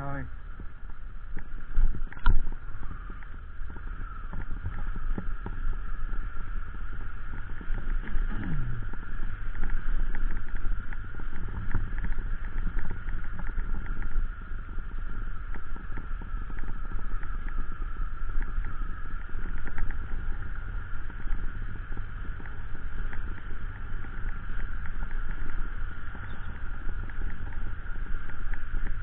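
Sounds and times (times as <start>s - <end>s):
motorcycle engine whining: 0.0s - 29.0s
wind rumble on microphone: 0.0s - 29.0s
short falling tone: 8.2s - 9.1s.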